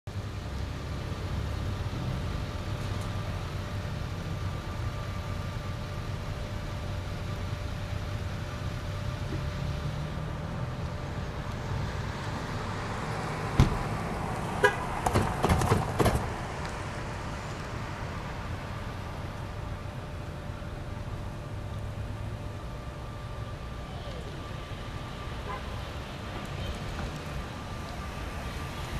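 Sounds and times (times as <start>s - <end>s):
truck rolling on rails rumble: 0.1s - 28.9s
sharp clanks and knocks: 15.0s - 16.3s.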